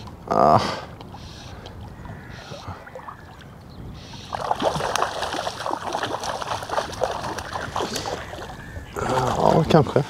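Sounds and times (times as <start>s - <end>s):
fish thrashing and splashing water: 4.3s - 9.5s.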